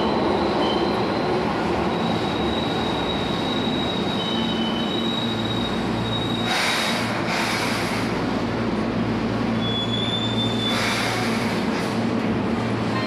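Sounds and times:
high wheel squeal: 0:00.6 - 0:07.8, 0:09.6 - 0:11.6.

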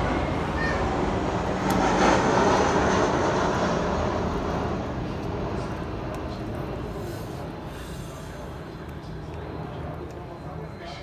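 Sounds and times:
passing vehicle engine: 0:00.0 - 0:05.7.

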